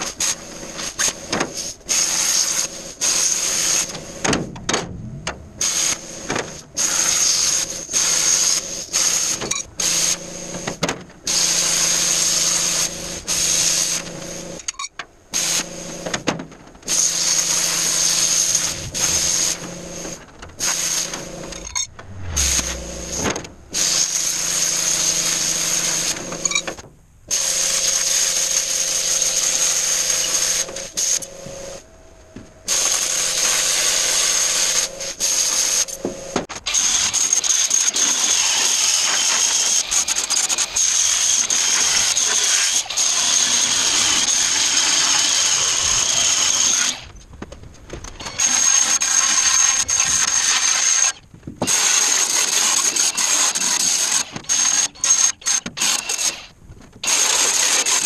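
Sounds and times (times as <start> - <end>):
power tool grinding steel: 17.0 - 26.7, 32.7 - 47.1.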